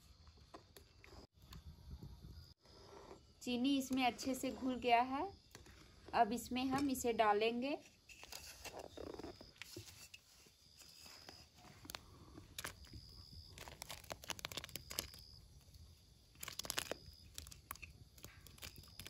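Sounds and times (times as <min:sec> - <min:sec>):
sharp crackles and clicks: 0:11.1 - 0:19.0.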